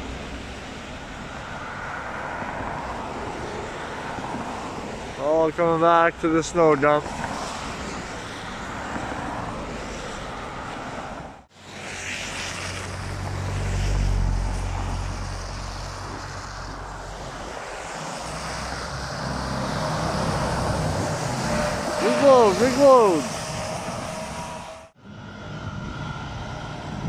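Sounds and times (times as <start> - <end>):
traffic on wet street: 0.0 - 27.0
truck engine approaching: 11.7 - 27.0
heavy diesel engine rumble: 14.4 - 25.5.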